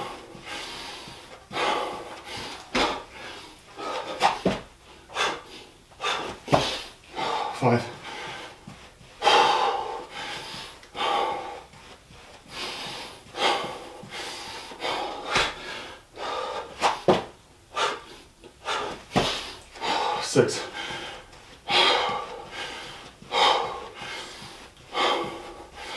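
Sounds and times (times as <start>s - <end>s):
feet and hands thudding on floor: 0.0s - 3.2s, 3.8s - 4.8s, 6.0s - 6.9s, 8.0s - 9.4s, 15.3s - 15.7s, 16.8s - 17.4s, 18.7s - 19.8s, 20.8s - 25.6s
man breathing hard: 0.0s - 25.9s.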